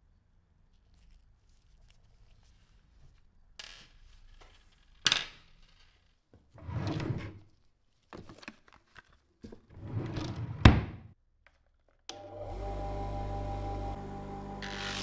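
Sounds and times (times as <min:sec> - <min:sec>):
drawer knocks and clicks: 0:09.7 - 0:11.1.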